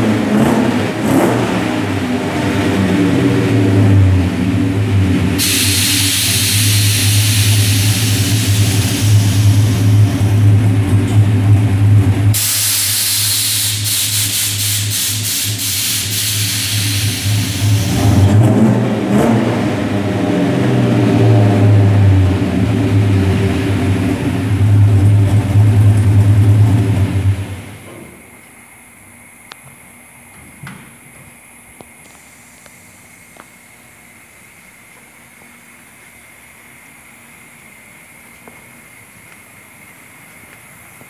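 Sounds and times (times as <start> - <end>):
pickup engine idling and revving: 0.0 - 12.6, 13.2 - 28.2
hiss: 5.4 - 10.5, 12.3 - 18.0, 32.0 - 35.8.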